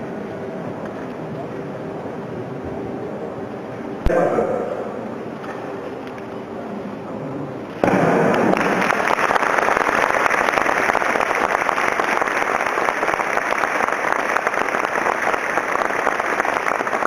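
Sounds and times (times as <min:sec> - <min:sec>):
crowd applauding: 0:07.8 - 0:17.0.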